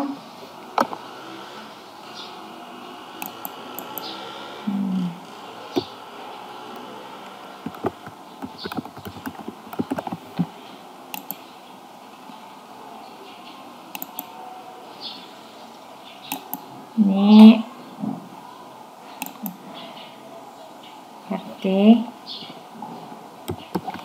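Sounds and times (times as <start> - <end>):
keyboard key clicks: 7.6 - 10.5, 11.2 - 11.4, 23.5 - 24.0.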